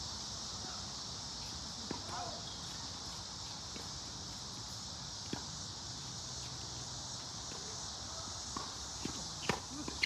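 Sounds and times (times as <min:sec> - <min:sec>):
insects chorus: 0:00.0 - 0:10.0.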